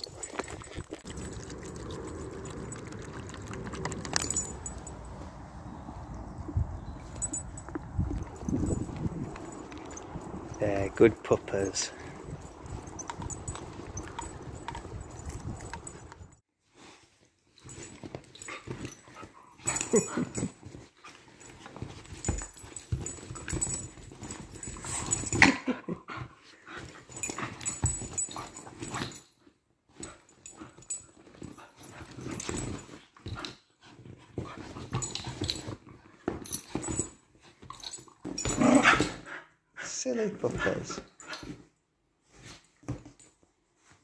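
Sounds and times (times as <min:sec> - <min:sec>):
dogs scuffling on sofa: 0:16.7 - 0:25.4, 0:29.9 - 0:39.3, 0:40.4 - 0:44.0
dogs growling: 0:38.4 - 0:39.3.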